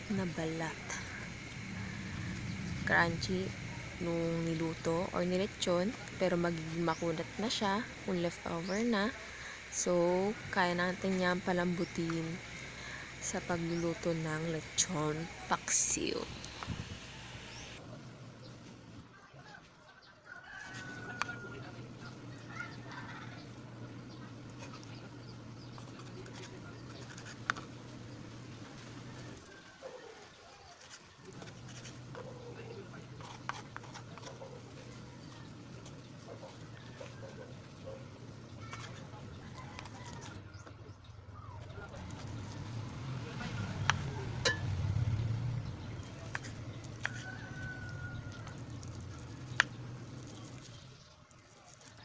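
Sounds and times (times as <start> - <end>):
low hum: 0.0 - 19.1
steady low hum: 0.0 - 19.2, 20.8 - 29.5, 31.2 - 51.6.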